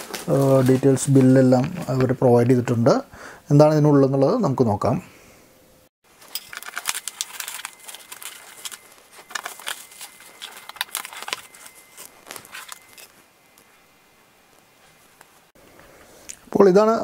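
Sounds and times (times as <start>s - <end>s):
bubble wrap crinkling and tearing: 0.0s - 1.4s, 6.2s - 13.0s.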